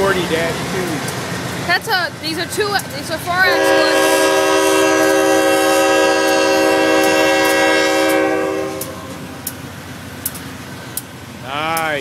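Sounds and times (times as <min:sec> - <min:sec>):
wheels clicking over rail joints: 0:00.0 - 0:03.5, 0:08.8 - 0:12.0
freight cars rumbling past: 0:00.0 - 0:12.0
locomotive air horn: 0:03.3 - 0:09.4.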